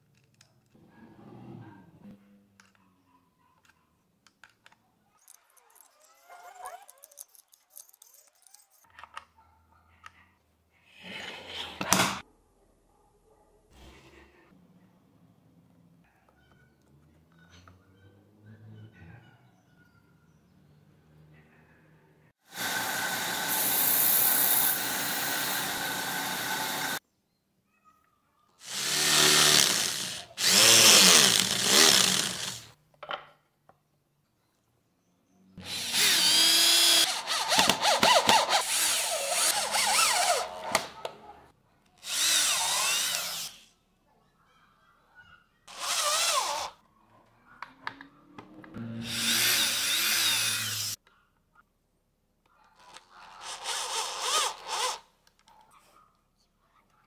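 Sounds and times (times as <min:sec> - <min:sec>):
power drill drilling into wood: 0:22.6 - 0:27.0, 0:28.6 - 0:32.7, 0:35.6 - 0:40.4, 0:42.0 - 0:43.6, 0:49.0 - 0:51.0.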